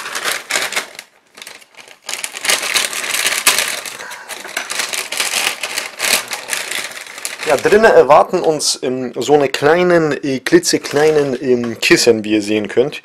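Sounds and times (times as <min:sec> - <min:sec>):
plastic cereal bag crinkling: 0:00.0 - 0:08.6, 0:10.6 - 0:12.0.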